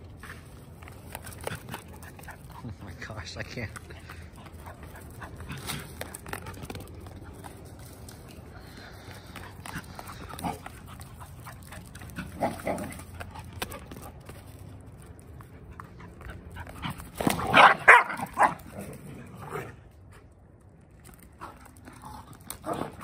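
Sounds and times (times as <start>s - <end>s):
small dogs barking and yipping: 16.8s - 18.6s.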